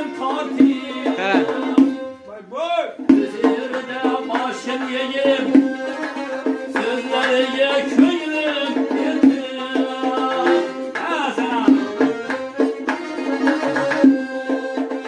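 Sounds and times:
button accordion: 0.0s - 2.4s, 3.1s - 15.0s.

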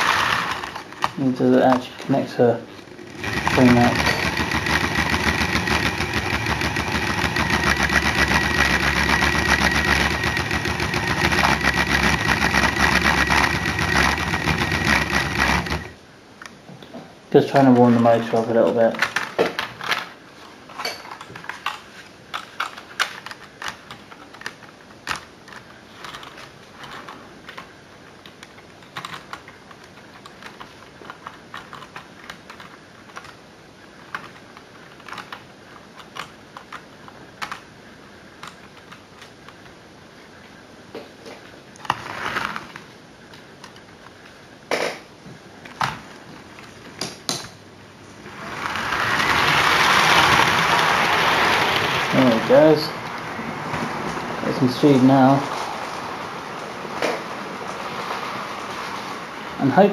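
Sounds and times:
model train rumble: 0.0s - 0.8s, 3.0s - 15.9s, 48.3s - 53.1s
model train clicking on track: 48.5s - 52.8s.

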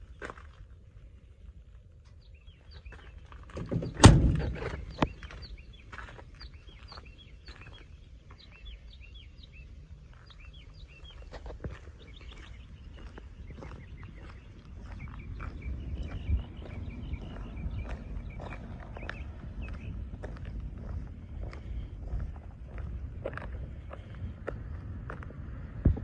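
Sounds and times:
small birds chirping: 2.1s - 26.0s
truck door slamming: 3.6s - 4.9s.

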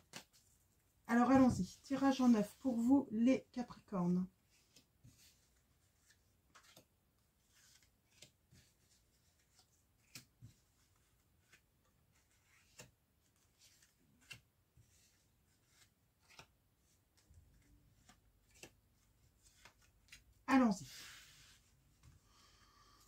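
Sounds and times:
cards tapping and swishing: 0.0s - 0.6s, 4.6s - 6.9s, 7.5s - 11.6s, 12.3s - 20.3s.

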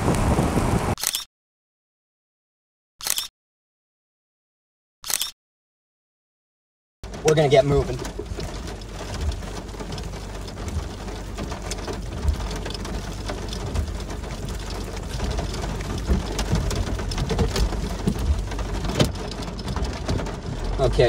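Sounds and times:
rain on car windshield: 0.0s - 1.0s, 7.0s - 21.0s.

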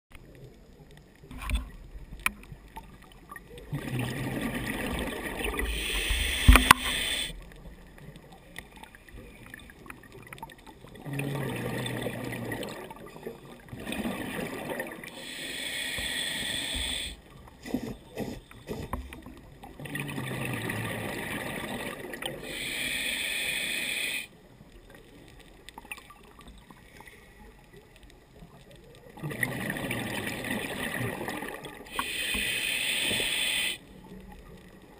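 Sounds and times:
exhaled bubbles rushing: 2.8s - 7.5s, 8.8s - 15.2s, 19.6s - 22.5s, 29.2s - 32.0s
diver breathing through regulator: 5.6s - 7.4s, 15.1s - 18.9s, 22.4s - 24.3s, 31.9s - 33.8s.

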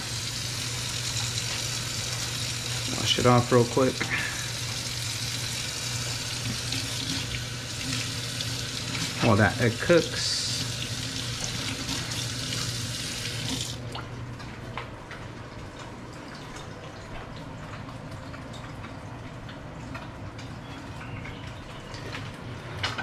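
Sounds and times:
faucet running into steel sink: 0.0s - 13.8s.

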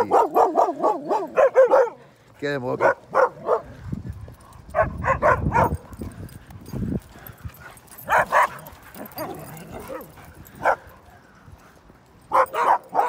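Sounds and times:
dogs barking: 0.0s - 2.1s, 2.8s - 3.8s, 4.7s - 6.3s, 7.2s - 11.3s, 12.2s - 13.0s
dogs scuffling: 5.6s - 13.0s.

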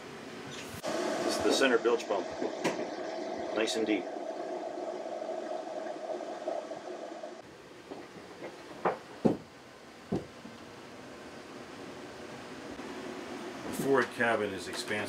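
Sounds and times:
air conditioning hum: 0.0s - 15.0s
footsteps on wooden floor: 7.9s - 9.5s.

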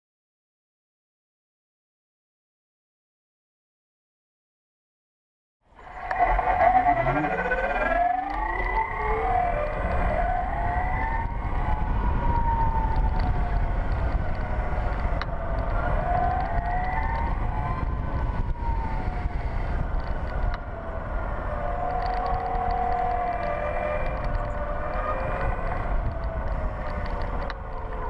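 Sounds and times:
wind and road noise rumble: 5.7s - 28.0s
electric motorcycle motor whining: 5.8s - 9.9s.

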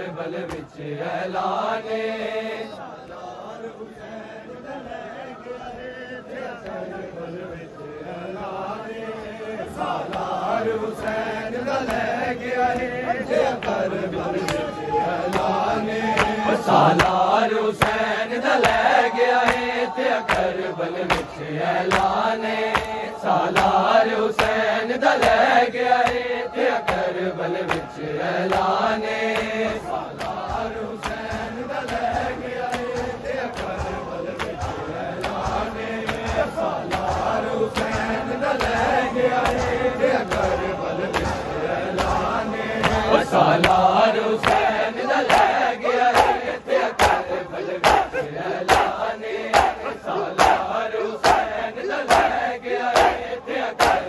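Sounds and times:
men chanting: 0.0s - 54.0s
chest-beating slaps: 0.4s - 0.8s, 13.6s - 54.0s.

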